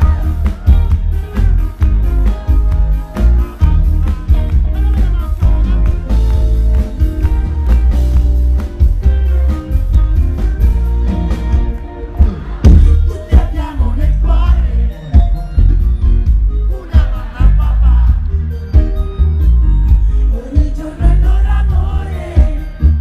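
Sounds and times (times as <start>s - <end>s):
heavy bass: 0.0s - 23.0s
live rock band playing: 0.0s - 23.0s
drum hits: 11.5s - 13.6s.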